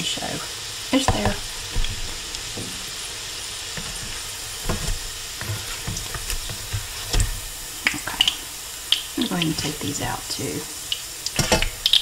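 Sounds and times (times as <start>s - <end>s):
patties sizzling in oil: 0.0s - 12.0s
spatula knocking in pan: 1.0s - 9.0s.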